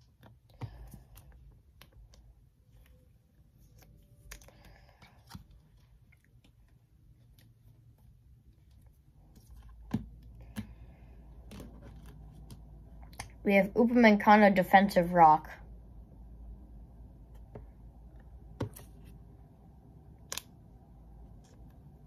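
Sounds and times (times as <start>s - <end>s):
cards rustling: 0.0s - 12.9s
cards clicking: 20.2s - 20.6s.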